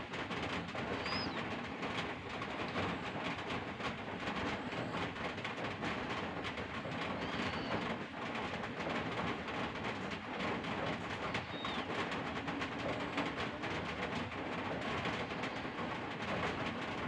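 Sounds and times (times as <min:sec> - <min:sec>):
birds calling: 0:00.9 - 0:01.5, 0:06.9 - 0:07.9, 0:11.2 - 0:12.0.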